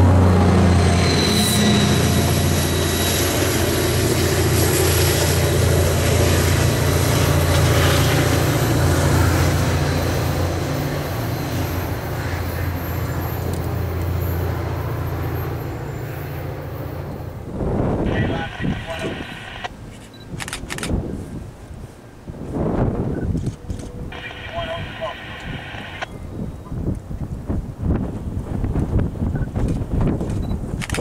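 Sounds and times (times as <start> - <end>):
wheel and rail noise: 0.0 - 17.6
diesel locomotive engine drone: 0.0 - 31.0.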